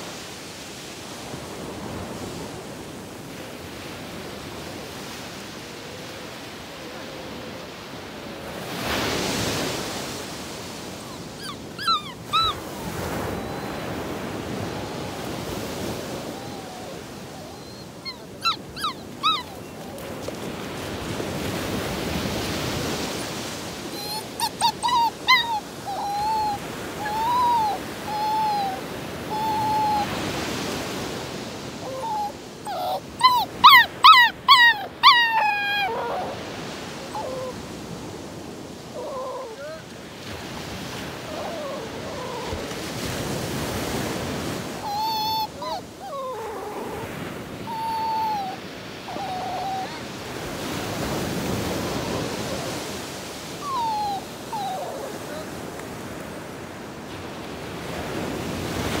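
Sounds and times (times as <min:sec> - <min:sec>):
dog whining and whimpering: 0:10.7 - 0:56.6.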